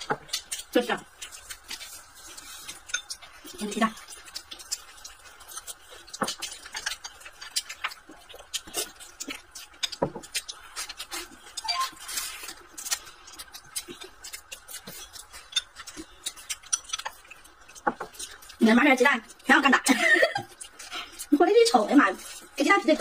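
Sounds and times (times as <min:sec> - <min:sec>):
chewing and lip smacks: 0:00.0 - 0:19.5, 0:20.4 - 0:21.4.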